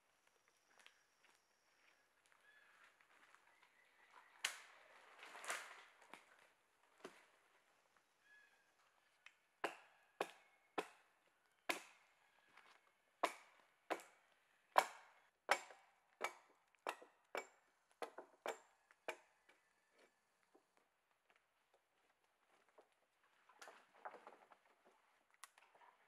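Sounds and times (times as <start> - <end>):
axe chopping wood: 9.6 - 11.1, 11.7 - 12.1, 13.2 - 14.2, 14.8 - 19.3.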